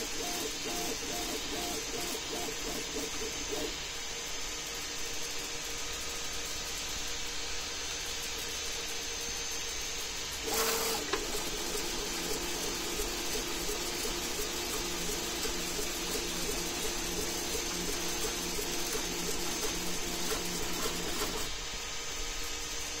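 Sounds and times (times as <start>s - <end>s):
stepper motors singing: 0.0s - 3.9s, 10.2s - 21.5s
cooling fans humming: 0.0s - 23.0s.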